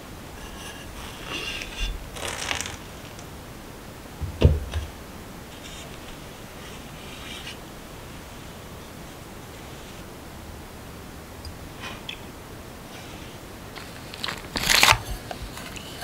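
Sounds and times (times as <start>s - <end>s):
cloth rustling and scraping: 0.0s - 3.4s, 4.2s - 10.1s
dull thump: 4.2s - 5.0s.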